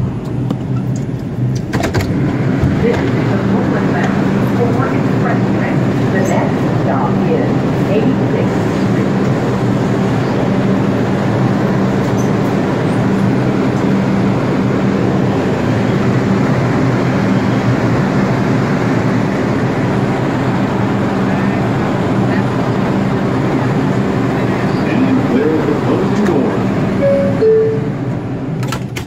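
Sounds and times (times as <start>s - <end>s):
constant low hum: 0.0s - 29.0s
subway train wheels rumbling: 0.0s - 29.0s.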